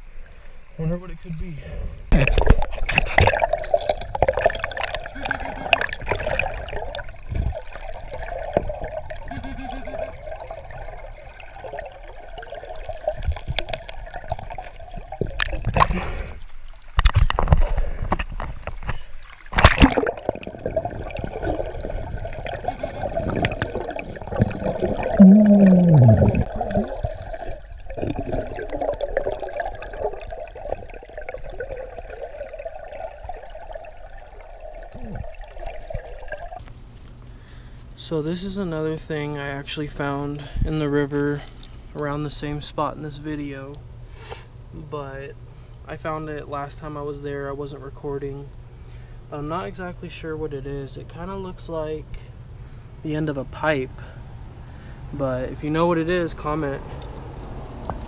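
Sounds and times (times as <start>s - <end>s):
muffled underwater river rush: 1.4s - 36.7s.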